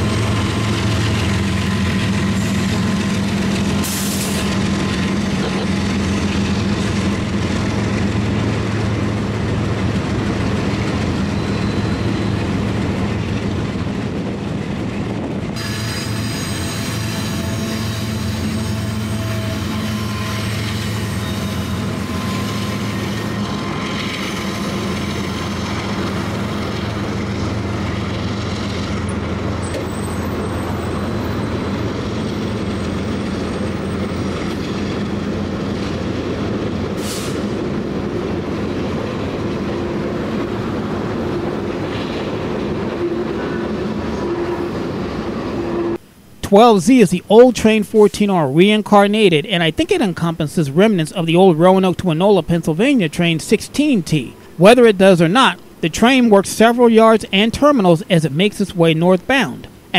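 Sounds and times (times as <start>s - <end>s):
train wheels rumbling on rails: 0.0s - 46.0s
diesel locomotive engine hum: 0.0s - 59.9s
faint wheel squeal: 11.2s - 12.4s, 15.6s - 24.8s, 29.6s - 31.1s.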